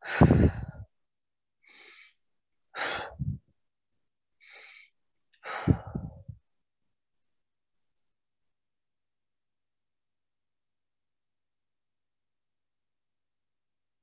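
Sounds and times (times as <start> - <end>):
woman breathing deeply: 0.0 - 0.9, 1.6 - 3.4, 4.4 - 6.4.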